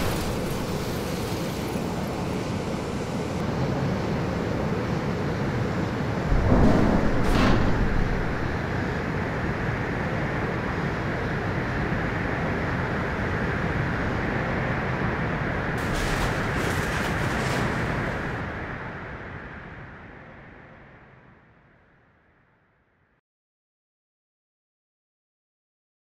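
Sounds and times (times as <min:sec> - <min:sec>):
rushing roar of air: 0:01.3 - 0:16.8
low surge with sharp crack: 0:06.3 - 0:08.9.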